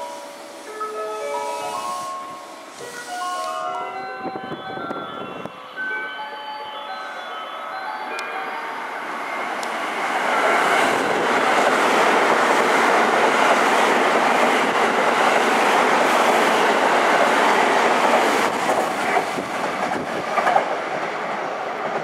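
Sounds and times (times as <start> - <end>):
train wheels rushing on rail: 8.7 - 22.0.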